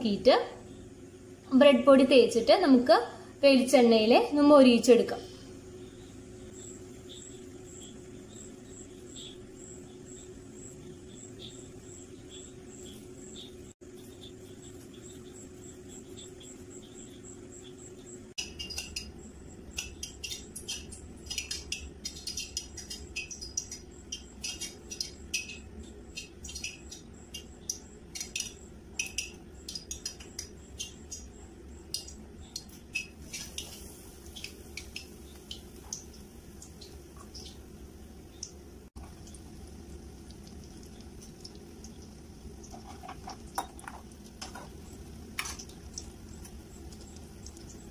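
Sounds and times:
faint steady hum: 0.0 - 47.9
oil crackling and popping: 38.4 - 47.9.

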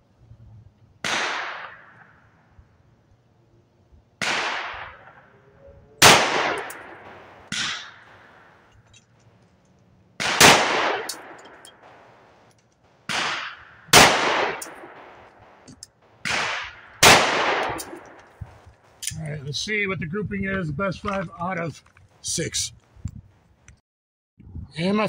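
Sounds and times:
pistol shots: 1.0 - 2.2, 4.2 - 5.3, 6.0 - 8.7, 10.2 - 19.0.

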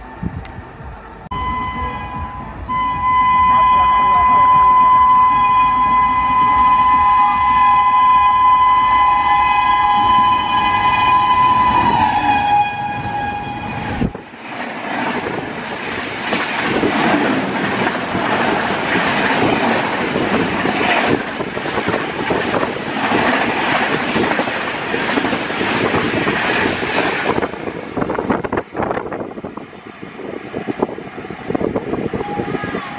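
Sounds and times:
two-tone train horn: 1.3 - 14.2
train wheels clattering on rail: 14.0 - 29.6.

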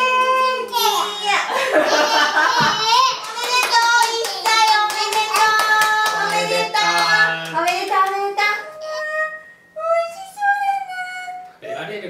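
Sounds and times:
voices singing: 1.9 - 10.1
hands clapping: 2.6 - 8.3.

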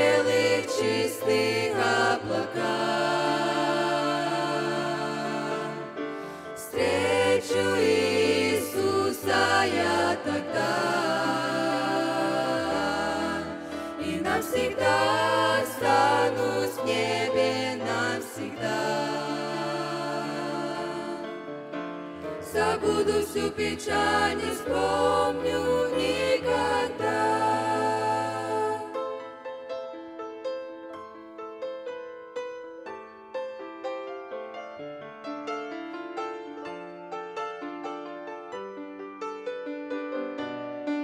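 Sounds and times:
vocal group singing in harmony: 0.0 - 29.4
steady musical accompaniment: 0.0 - 33.9.

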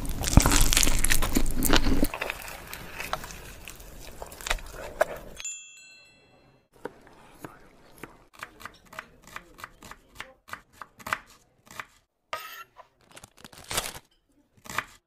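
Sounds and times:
knife chopping on cutting board: 6.8 - 12.6, 14.6 - 15.0.

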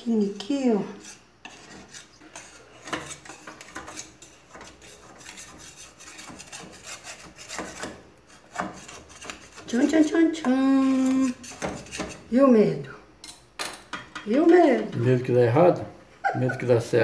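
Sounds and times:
knife scraping metal cake pan: 0.4 - 12.3.

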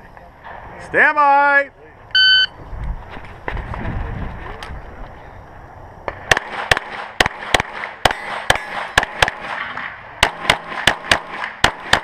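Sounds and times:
pistol shots with echo: 6.1 - 12.0.

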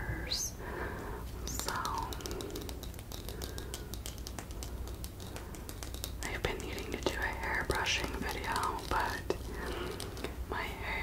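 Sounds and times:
person whispering: 1.4 - 2.7, 6.2 - 11.0
fingernails tapping plastic hairbrush: 1.5 - 10.4.

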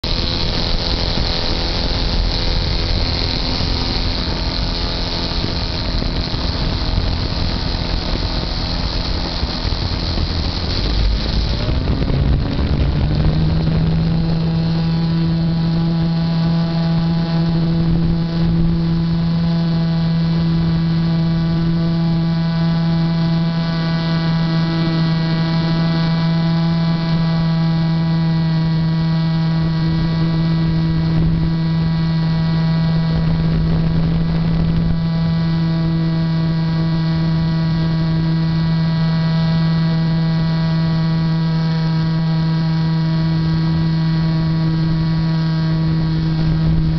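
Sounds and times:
model airplane motor and propeller: 0.0 - 46.9.

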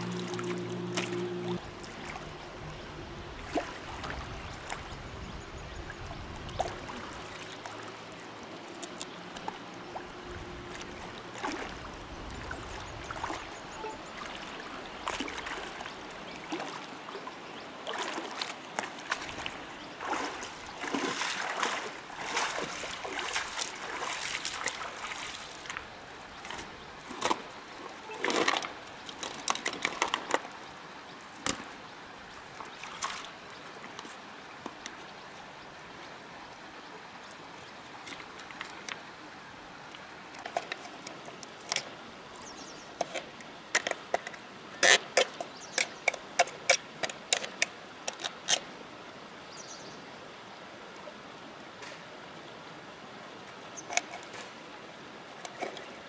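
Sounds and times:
footsteps wading through shallow water: 0.0 - 35.0.

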